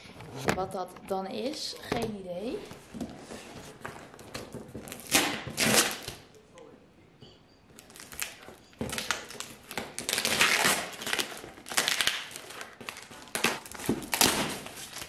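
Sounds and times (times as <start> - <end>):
packing tape ripping off cardboard: 3.6 - 6.3, 7.8 - 15.0.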